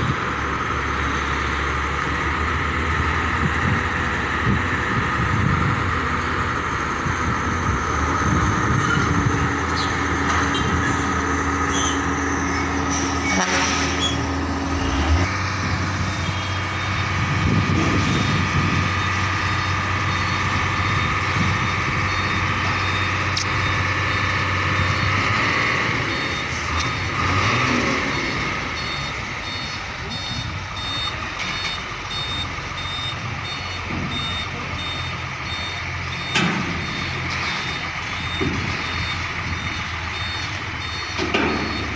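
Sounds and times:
diesel trucks running: 0.0 - 41.9
reversing alarm beeping: 16.1 - 41.9.

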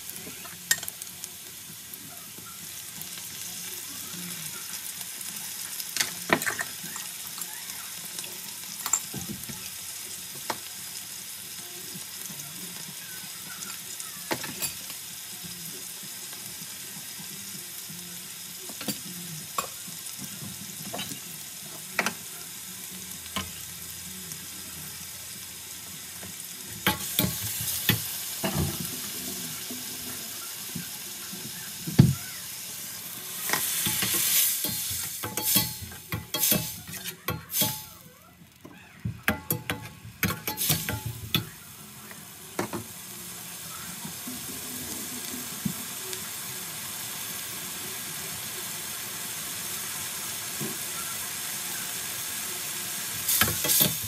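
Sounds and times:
onion sizzling in hot oil: 0.0 - 54.0
metal spatula scraping a pan: 33.3 - 38.0, 53.3 - 54.0.

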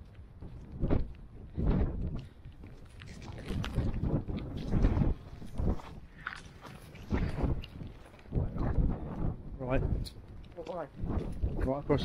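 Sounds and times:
wind buffeting microphone: 0.0 - 12.0
footsteps on grass: 2.1 - 8.4.

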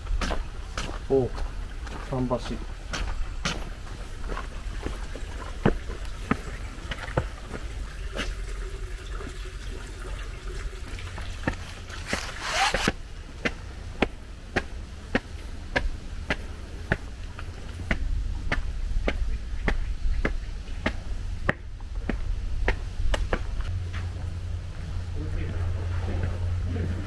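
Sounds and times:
footsteps on stone steps: 0.0 - 8.4, 11.1 - 26.4
low rumble: 13.1 - 27.0.

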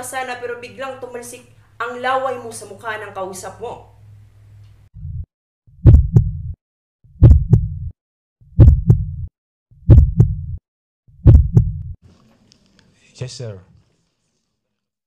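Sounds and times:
heartbeat thumps: 5.0 - 10.6, 11.2 - 12.0.

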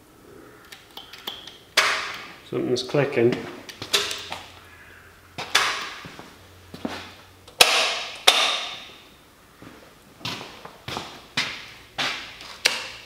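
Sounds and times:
sharp metallic clunks: 1.8 - 2.3, 3.8 - 4.5, 5.4 - 6.0.

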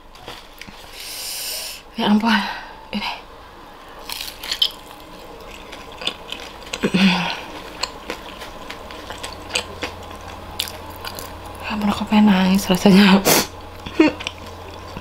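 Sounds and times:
crisp chewing crunches: 4.0 - 11.7
person humming: 6.8 - 7.5.

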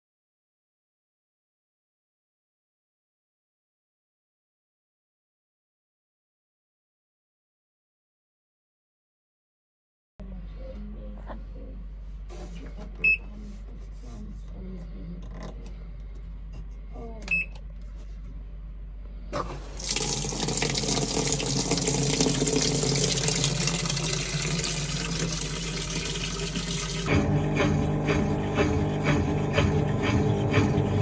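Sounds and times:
washing machine beeps: 13.0 - 13.3, 17.3 - 17.6
water rushing into drum: 19.4 - 27.1.

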